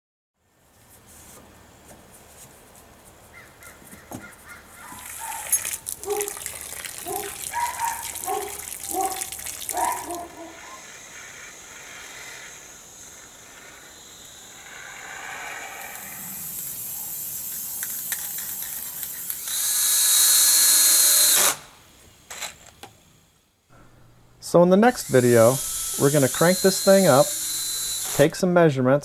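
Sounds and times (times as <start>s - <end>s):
harsh bird caws: 3.3s - 5.4s
cordless drill whining: 10.3s - 21.7s, 22.3s - 22.9s, 24.9s - 28.4s.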